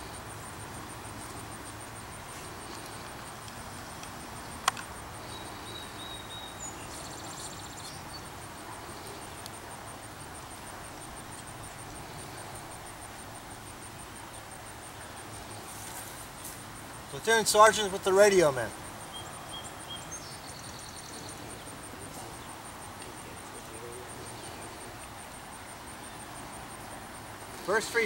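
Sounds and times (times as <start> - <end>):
high pulsing insect call: 0.0 - 28.0
bird calling: 1.2 - 9.5, 13.8 - 25.1
sharp crack: 4.6 - 4.9.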